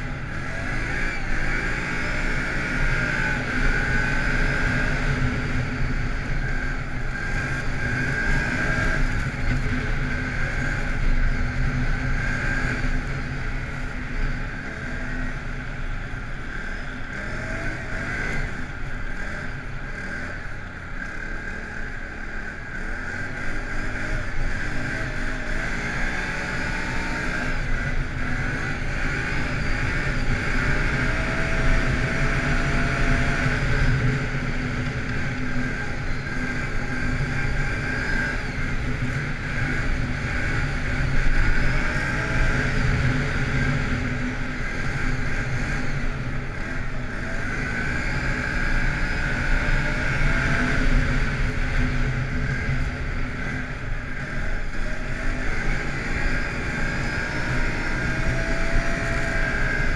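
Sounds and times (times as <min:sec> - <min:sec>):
atv engine revving: 0:00.0 - 0:59.9.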